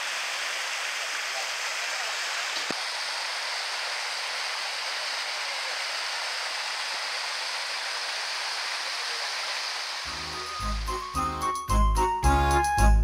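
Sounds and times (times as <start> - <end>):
small river flowing: 0.0 - 10.8.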